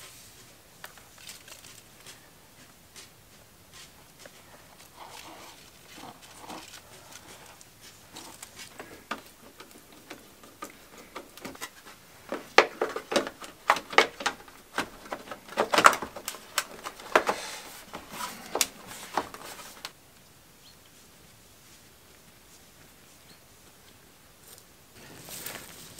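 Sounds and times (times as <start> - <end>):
faint rustling: 0.0 - 20.0, 20.9 - 25.9
plastic clicks and knocks: 8.7 - 17.4.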